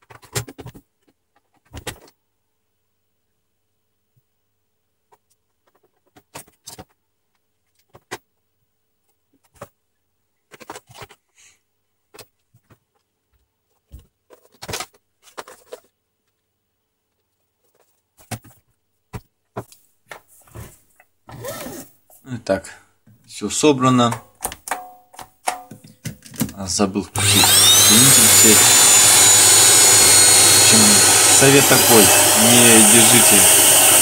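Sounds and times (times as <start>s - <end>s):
plastic parts clicking and knocking: 0.0s - 2.2s, 5.1s - 8.4s, 10.4s - 11.2s, 12.1s - 16.5s, 17.1s - 20.3s, 24.0s - 26.7s
plastic scraping: 13.7s - 16.4s.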